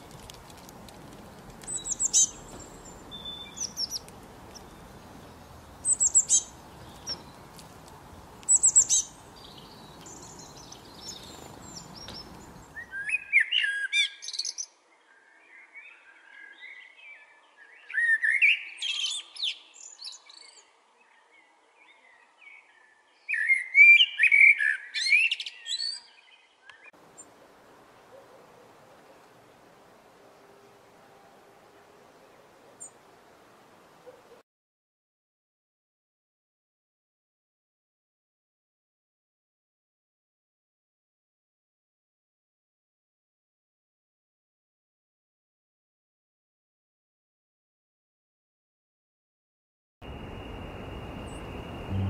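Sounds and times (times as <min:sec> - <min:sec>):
blackbird singing: 0:01.6 - 0:07.4, 0:08.5 - 0:27.3
steady background hiss: 0:50.0 - 0:52.0.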